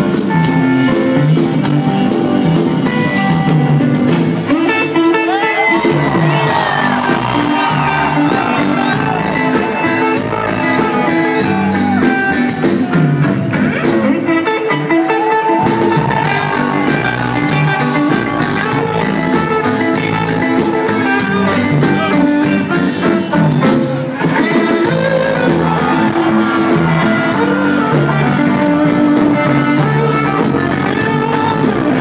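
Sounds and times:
bass guitar: 0.0 - 32.0
electric guitar with bent notes: 0.0 - 32.0
drum kit steady beat: 5.8 - 14.4, 15.6 - 32.0.

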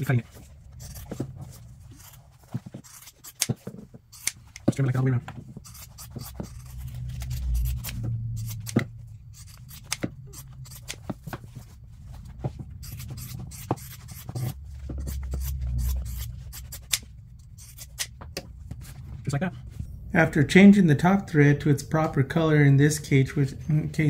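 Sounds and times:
scissors snipping: 4.2 - 4.7, 9.4 - 11.1.

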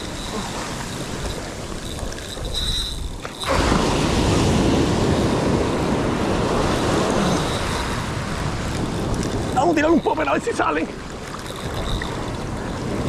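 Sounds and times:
wind buffeting microphone: 0.0 - 13.0
ocean surf on beach: 3.4 - 13.0.

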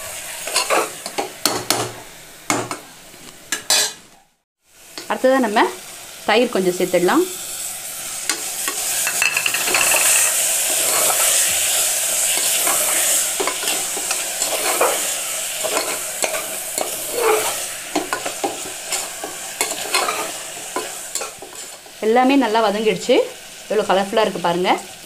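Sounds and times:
food sizzling in a pot: 0.0 - 25.0
steel spoon scraping pot: 0.4 - 1.2, 8.2 - 21.9.

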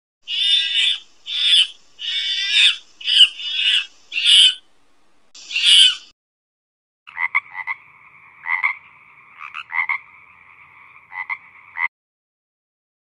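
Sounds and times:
toad steady low call: 0.2 - 4.7, 5.4 - 6.1, 7.1 - 11.9
toad rasping croaks: 0.3 - 4.6, 5.4 - 6.0, 7.1 - 11.9.

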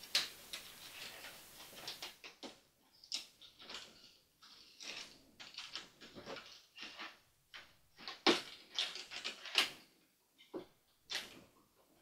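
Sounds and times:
plastic and cardboard rustling: 0.0 - 2.6.

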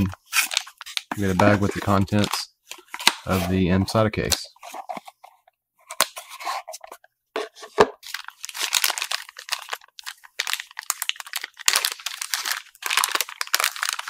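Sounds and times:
plastic bag crinkling: 8.0 - 14.0.

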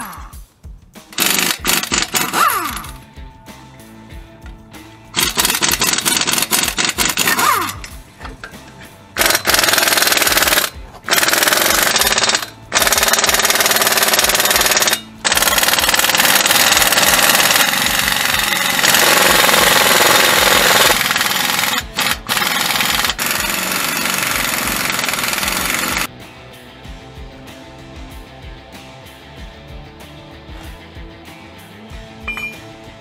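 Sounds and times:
air impact wrench hammering: 1.1 - 3.0, 5.1 - 26.1.

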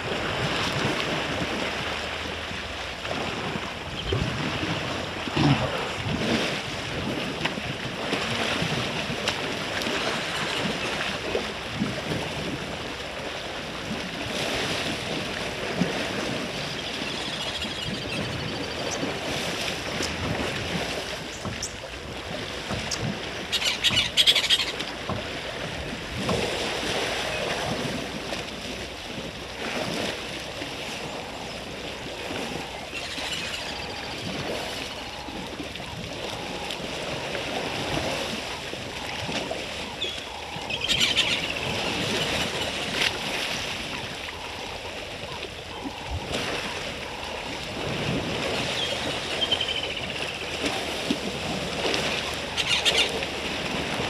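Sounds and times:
water sloshing and splashing: 0.0 - 54.0
bird chirping calls: 16.7 - 19.0, 22.9 - 24.8, 32.8 - 34.3, 39.9 - 42.8, 48.7 - 50.5, 52.5 - 53.2.

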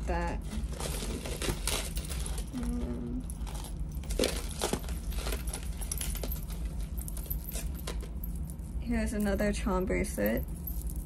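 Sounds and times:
metal jewelry clinking: 3.2 - 11.0.

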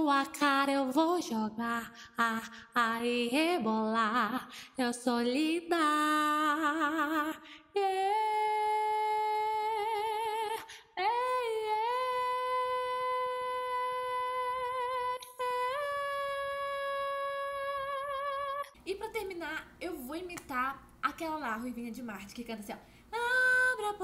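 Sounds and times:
woman breathing: 22.8 - 23.2.

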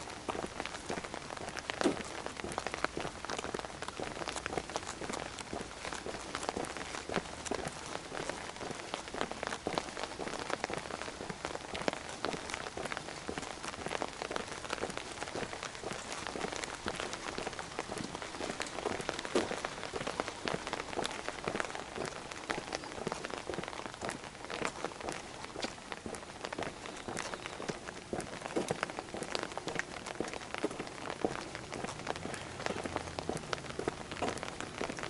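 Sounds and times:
rain pattering: 0.0 - 35.0.

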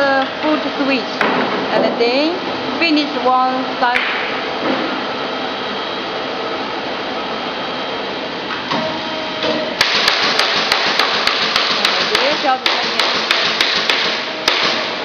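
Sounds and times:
stamping machine hissing: 9.4 - 15.0.

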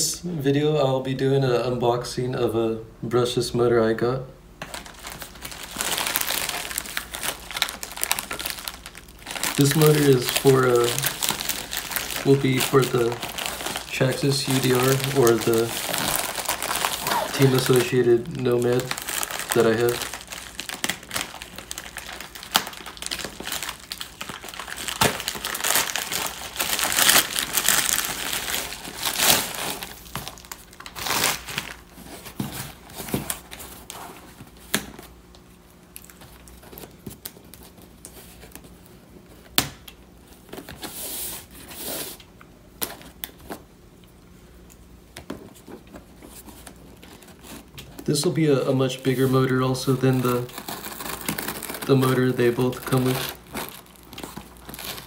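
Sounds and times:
plastic mailing bag crinkling and tearing: 4.6 - 38.8, 45.5 - 55.0.

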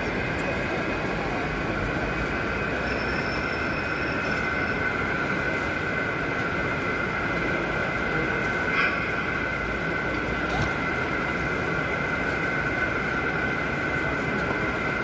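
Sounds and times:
model train whine: 0.0 - 15.0.

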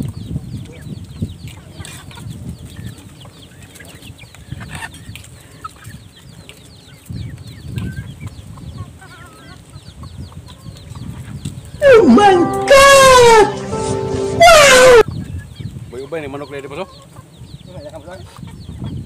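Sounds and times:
wind rumble on microphone: 0.0 - 3.4, 4.0 - 11.8, 17.4 - 19.0.

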